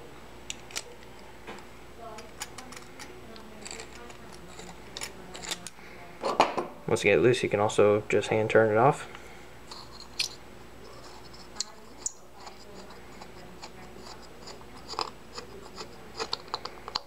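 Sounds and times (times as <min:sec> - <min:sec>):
metal parts clicking: 0:02.2 - 0:05.8.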